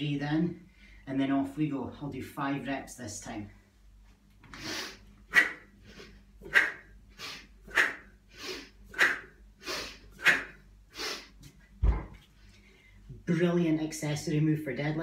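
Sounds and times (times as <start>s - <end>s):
woman breathing forcefully: 4.5s - 11.4s
kettlebells thumping on floor: 11.8s - 12.2s.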